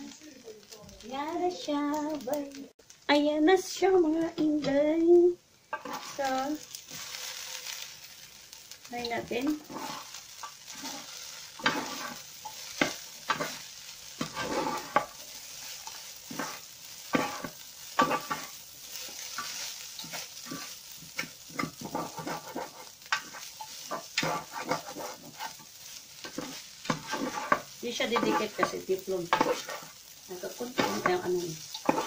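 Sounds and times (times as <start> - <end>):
rice sizzling in oil: 0.0 - 32.0
scraping strokes in pan: 5.7 - 32.0.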